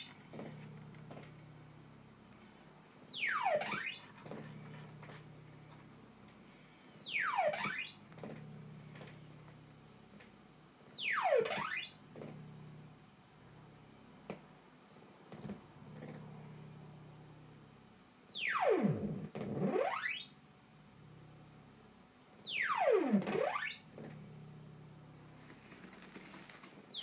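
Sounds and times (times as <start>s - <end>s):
high falling synth chirp: 2.9s - 4.2s
synthesizer pitch glides: 3.0s - 4.2s, 6.9s - 8.1s.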